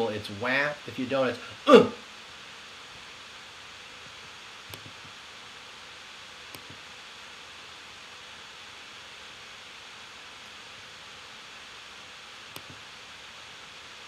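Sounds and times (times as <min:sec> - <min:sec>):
microphone hiss: 0:00.0 - 0:14.0
faint clicks: 0:04.7 - 0:05.1, 0:12.5 - 0:12.8.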